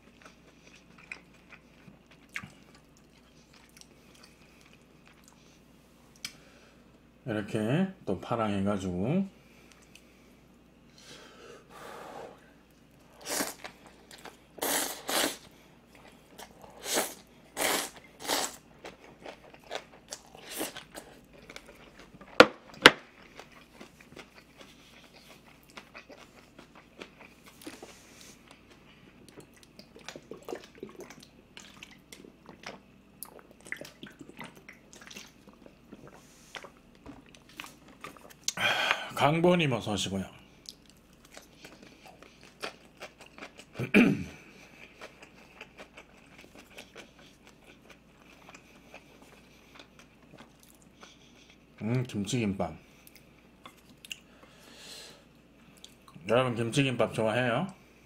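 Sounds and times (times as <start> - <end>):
small chewing sounds: 0.0 - 6.4, 9.5 - 10.3, 12.6 - 38.6, 40.5 - 51.9, 52.8 - 54.6, 55.5 - 56.2
loud slurps and bites: 14.6 - 15.4.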